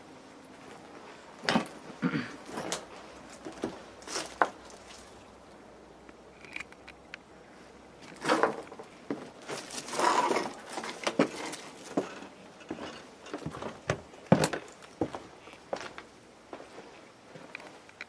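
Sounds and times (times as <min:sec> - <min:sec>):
footsteps crunching on rubble: 0:01.4 - 0:05.3, 0:08.1 - 0:17.8.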